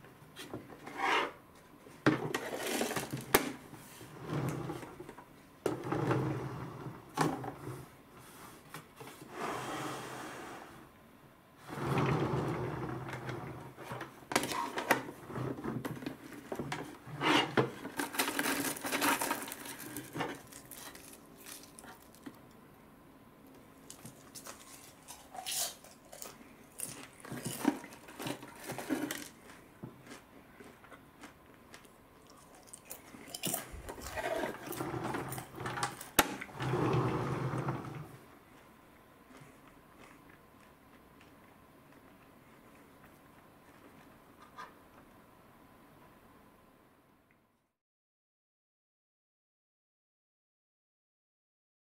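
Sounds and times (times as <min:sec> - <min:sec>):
plastic scraping and rubbing: 0:11.7 - 0:22.2.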